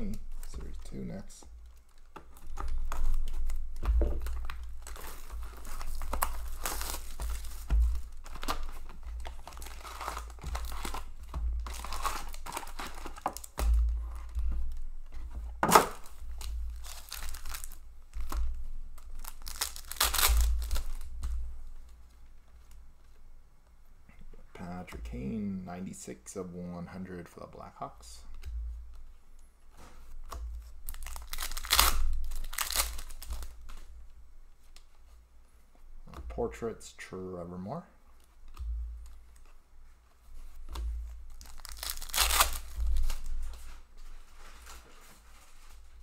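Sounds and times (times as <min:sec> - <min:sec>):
plastic wrappers crinkling and tearing: 0:00.0 - 0:23.2, 0:30.0 - 0:33.9, 0:40.4 - 0:46.0.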